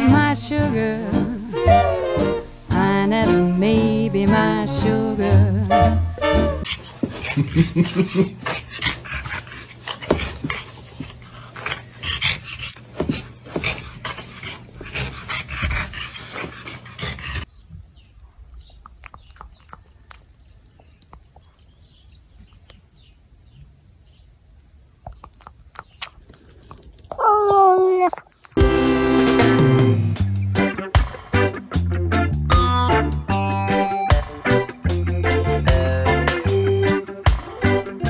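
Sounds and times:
dog panting: 6.6 - 17.5.

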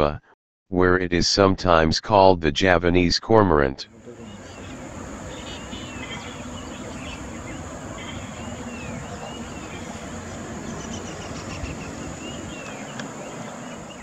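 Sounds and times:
low background rumble: 3.8 - 14.0
high-pitched insect drone: 3.9 - 14.0
bird chirps: 4.0 - 14.0.

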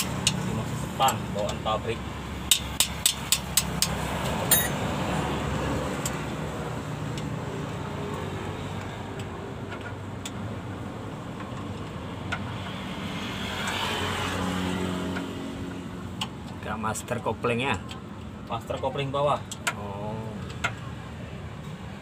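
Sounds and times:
sharp metallic clicks: 2.4 - 4.8.

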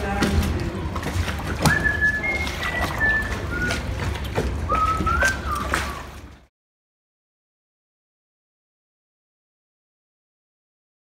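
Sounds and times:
person whistling a melody: 1.6 - 4.0, 4.7 - 6.1.

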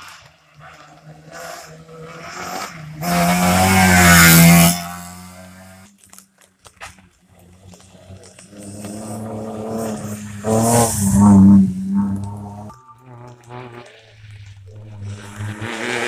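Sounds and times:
rally car passing at speed: 0.1 - 5.8, 7.8 - 16.0.

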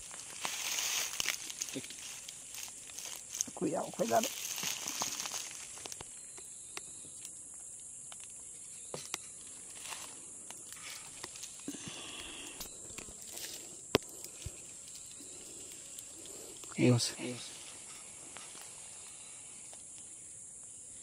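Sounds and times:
insects droning: 0.0 - 21.0.

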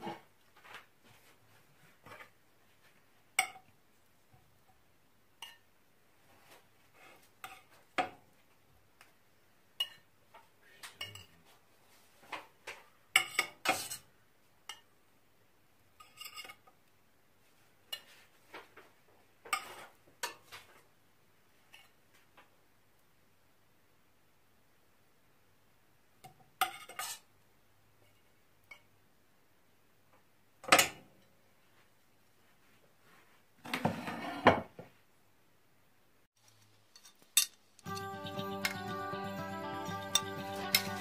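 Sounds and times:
cutlery and dishes clinking: 3.4 - 3.7, 11.0 - 11.4, 12.7 - 14.1, 16.0 - 16.7, 19.5 - 20.5, 26.2 - 27.3, 36.6 - 37.9.

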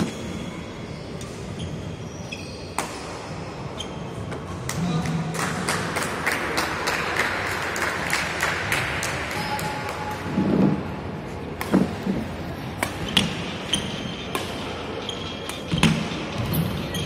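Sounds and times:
racket striking shuttlecock: 12.8 - 16.1.

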